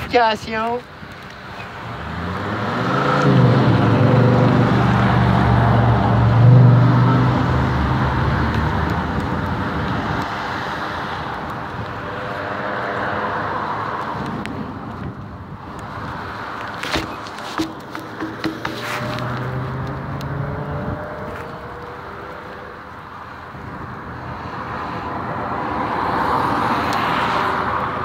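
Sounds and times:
road noise: 0.0s - 28.0s
car engine accelerating: 18.9s - 22.7s.

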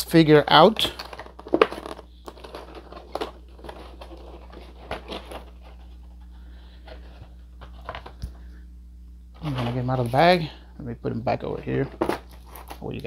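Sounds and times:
low hum: 0.0s - 12.8s
plastic packaging crinkling: 0.5s - 8.3s.

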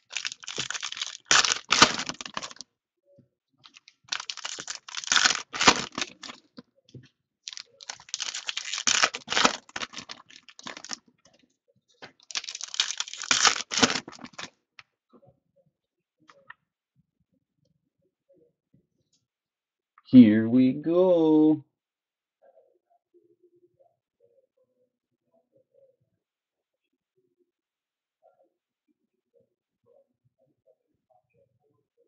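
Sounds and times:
foil wrappers torn and crinkled: 0.0s - 2.6s, 3.7s - 6.4s, 7.5s - 11.0s, 12.2s - 14.5s.

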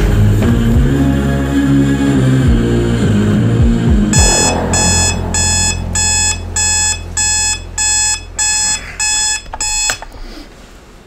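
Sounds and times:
alarm clock beeping: 4.2s - 10.0s
alarm clock click: 4.2s - 10.0s.

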